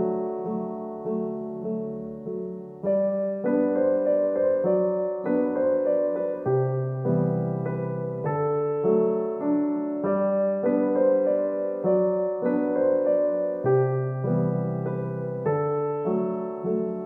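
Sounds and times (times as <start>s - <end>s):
gentle solo piano piece: 0.0s - 17.0s.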